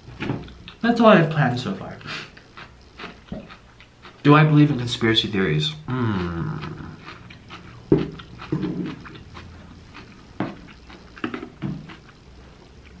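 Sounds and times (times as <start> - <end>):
person chewing: 2.0 - 4.2, 5.8 - 13.0.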